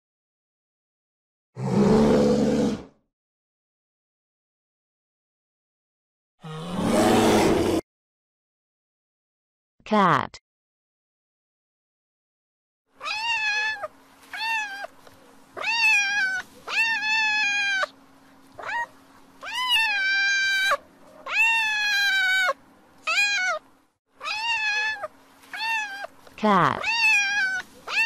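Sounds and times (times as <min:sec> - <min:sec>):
cat meowing: 0:13.0 - 0:14.9, 0:15.6 - 0:17.9, 0:18.6 - 0:23.6, 0:24.2 - 0:26.1, 0:26.8 - 0:28.0
faint steady hum: 0:13.0 - 0:28.0.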